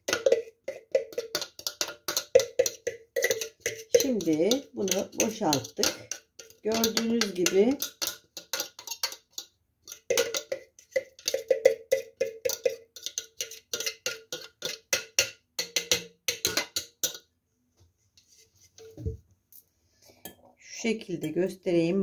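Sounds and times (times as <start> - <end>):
spoon tapping plastic bowl: 0.0 - 17.3.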